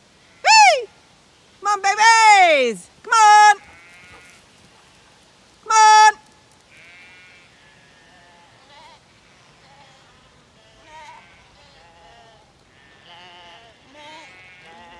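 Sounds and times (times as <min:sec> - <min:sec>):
shepherd calling: 0:00.4 - 0:00.9, 0:01.6 - 0:05.1, 0:05.7 - 0:10.2
lambs bleating: 0:03.6 - 0:04.4, 0:06.7 - 0:14.9.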